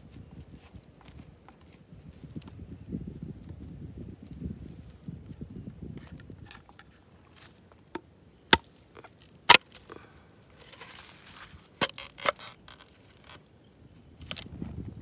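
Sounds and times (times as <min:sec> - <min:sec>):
bamboo tube cracking: 0:07.8 - 0:13.5, 0:14.2 - 0:14.5.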